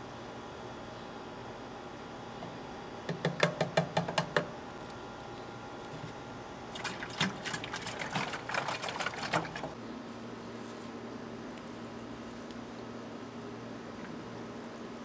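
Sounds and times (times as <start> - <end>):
water sloshing in can: 6.7 - 9.8.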